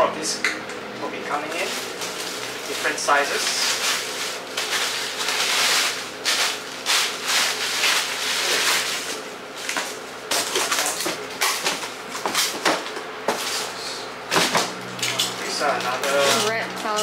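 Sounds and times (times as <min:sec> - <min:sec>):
bubble wrap rustling and crinkling: 0:01.5 - 0:12.6.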